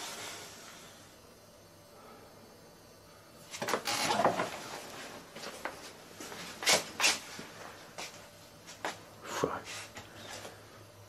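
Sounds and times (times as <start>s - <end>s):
things clattering and rustling: 3.5s - 7.5s.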